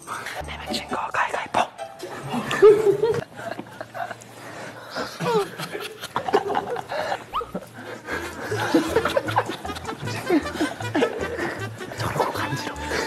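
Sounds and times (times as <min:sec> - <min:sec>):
background music: 0:00.0 - 0:03.6, 0:07.3 - 0:13.0
people laughing: 0:02.1 - 0:13.0.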